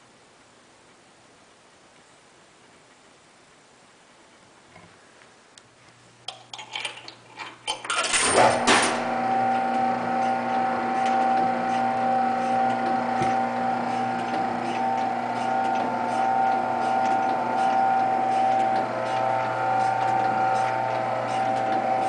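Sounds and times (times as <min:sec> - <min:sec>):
drive mechanism humming and whirring: 0:06.6 - 0:22.0.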